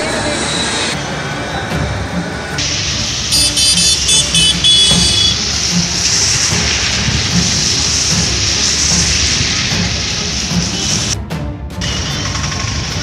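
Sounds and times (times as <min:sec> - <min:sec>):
tyres washing through water: 0:00.0 - 0:13.0
vehicle engines running: 0:00.0 - 0:13.0
vehicle horn toots: 0:03.3 - 0:05.5, 0:11.8 - 0:12.6.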